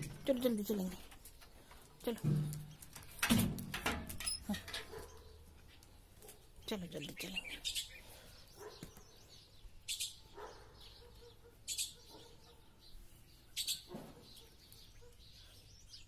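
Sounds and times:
bird chirping: 4.2s - 16.0s.

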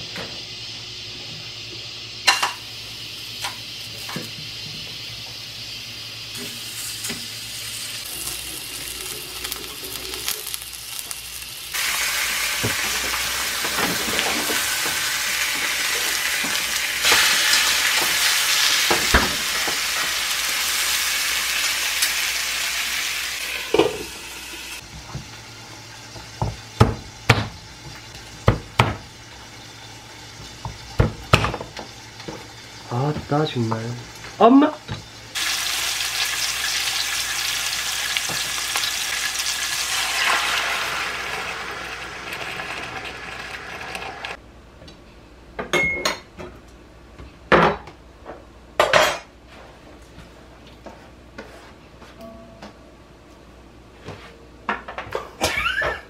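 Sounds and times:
meat sizzling in a pan: 0.0s - 44.4s.

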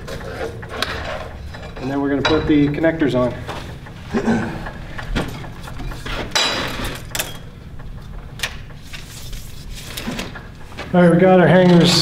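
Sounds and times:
tools knocking and clicking: 0.0s - 8.8s.

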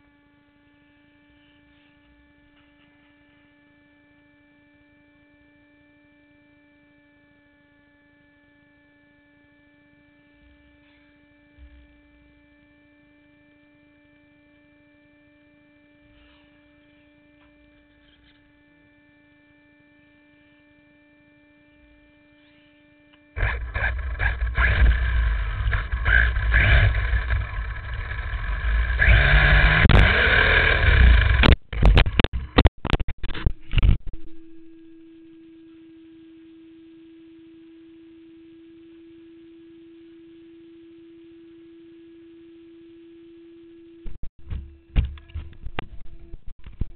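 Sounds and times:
faint electronic hum: 0.0s - 46.9s
toy truck motor driving: 23.4s - 31.5s.

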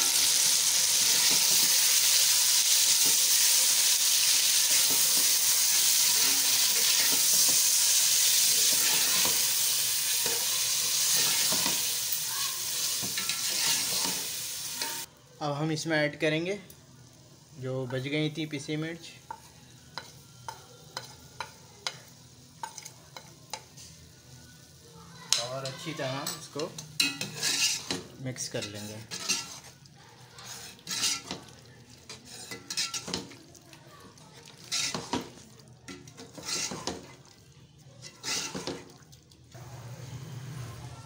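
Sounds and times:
faint sizzle of frying: 0.0s - 41.0s
metal spoon scraping a pot: 4.7s - 9.5s, 10.2s - 11.9s, 13.0s - 15.1s, 25.7s - 29.8s, 30.4s - 33.4s, 34.6s - 35.3s, 35.9s - 37.2s, 38.0s - 38.8s.

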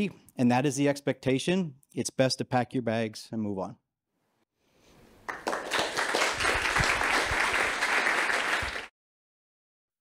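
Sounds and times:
audience applauding: 5.3s - 8.9s.

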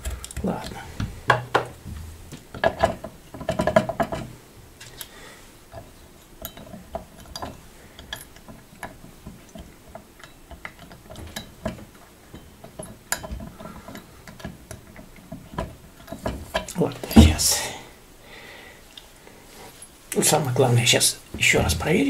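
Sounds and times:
metal tap parts clinking: 5.7s - 17.5s.

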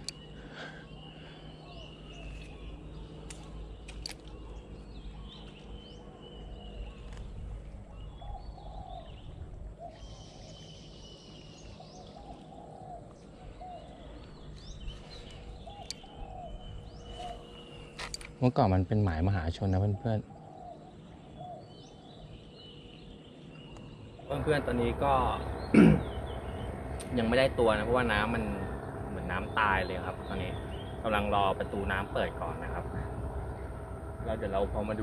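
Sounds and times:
sharp clicks: 0.0s - 0.2s, 3.2s - 4.5s
low steady rumble: 0.0s - 18.4s, 22.0s - 35.0s
small birds chirping: 0.0s - 35.0s.

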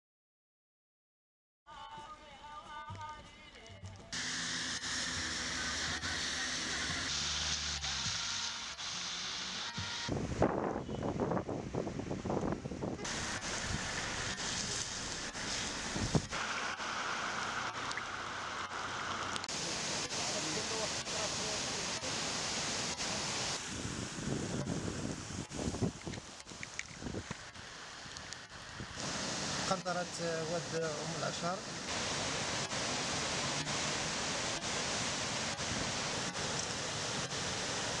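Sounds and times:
heavy rain on water: 4.2s - 10.3s, 13.0s - 38.0s
water rushing: 4.2s - 10.5s, 11.7s - 38.0s.

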